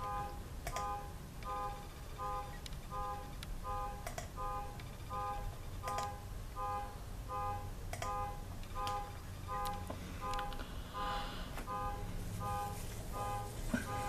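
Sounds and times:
sharp clicks: 0:00.6 - 0:00.9, 0:03.4 - 0:04.9, 0:05.8 - 0:06.1.

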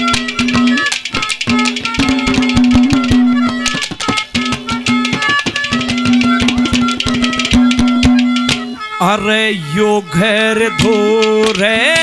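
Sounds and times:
hand drums playing fast rhythm: 0:00.0 - 0:08.8
melody of held notes: 0:00.0 - 0:10.8.

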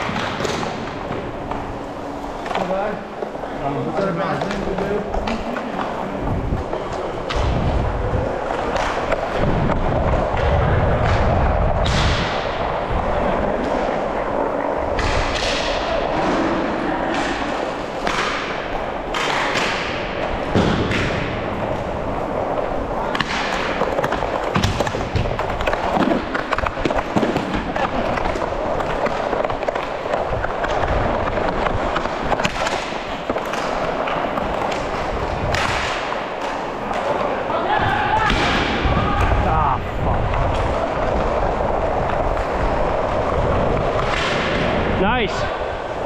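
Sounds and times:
hockey stick and puck clacks: 0:00.0 - 0:07.7, 0:08.4 - 0:12.6, 0:14.6 - 0:37.5, 0:40.1 - 0:44.9
inline skate wheels rolling: 0:00.0 - 0:46.0.

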